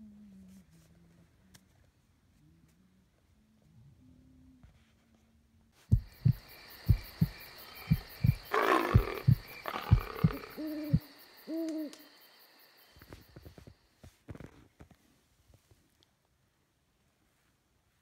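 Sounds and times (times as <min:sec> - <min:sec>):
dull thumps: 0:05.9 - 0:11.0
owl hooting: 0:05.9 - 0:13.4.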